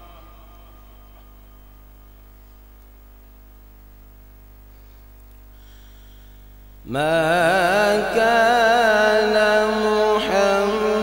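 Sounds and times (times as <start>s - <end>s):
man reciting melodically: 0.0s - 1.6s, 6.8s - 11.0s
electrical hum: 0.0s - 11.0s.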